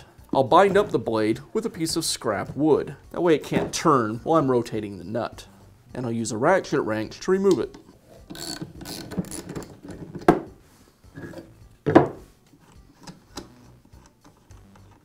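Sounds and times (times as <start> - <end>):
ratchet wrench clicking: 8.3 - 9.1.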